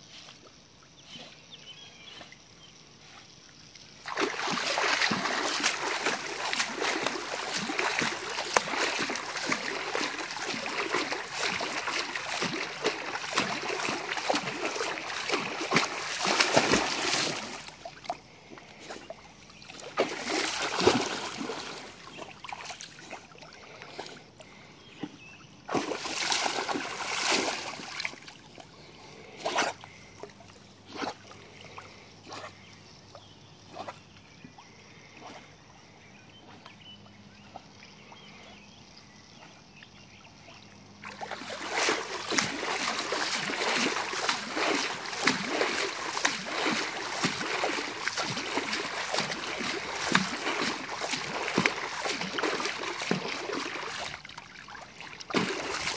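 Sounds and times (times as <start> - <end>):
pool water splashing: 3.8 - 24.4, 25.6 - 32.1, 40.3 - 55.9.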